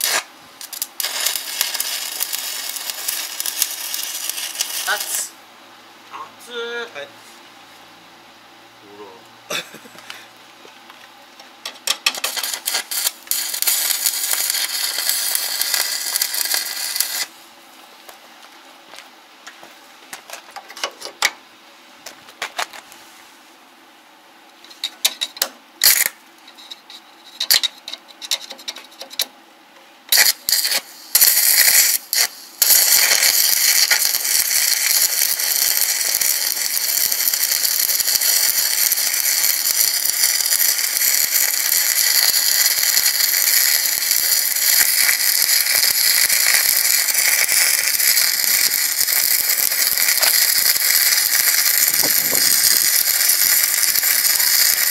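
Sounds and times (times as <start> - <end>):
welding arc crackling: 0.0 - 5.4, 11.6 - 17.4, 24.7 - 26.2, 30.1 - 54.9.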